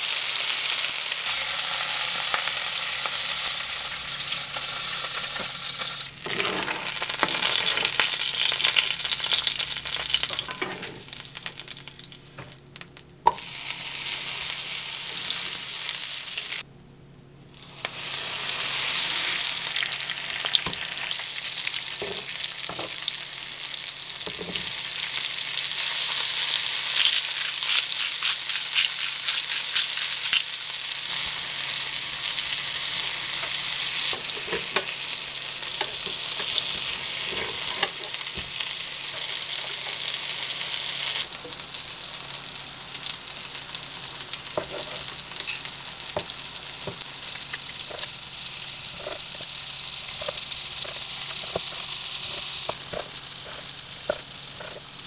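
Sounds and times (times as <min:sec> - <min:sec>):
oil sizzling in frying pan: 0:00.0 - 0:16.6, 0:17.6 - 0:55.0.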